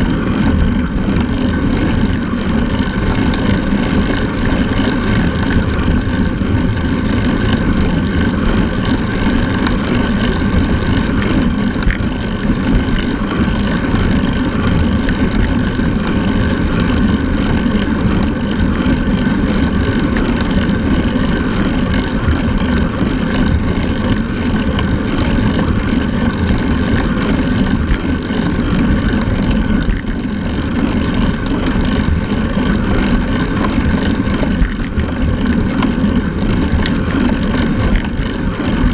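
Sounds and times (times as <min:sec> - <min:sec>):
tyres rumbling on asphalt: 0:00.0 - 0:38.9
wind rush on camera: 0:00.0 - 0:38.9.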